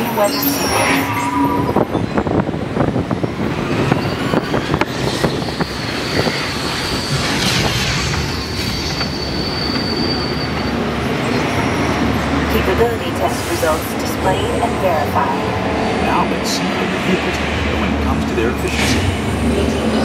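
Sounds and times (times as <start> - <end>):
high-pitched squeal: 0.0 - 2.4, 3.7 - 12.3
ride vehicle rumbling on track: 0.0 - 20.0.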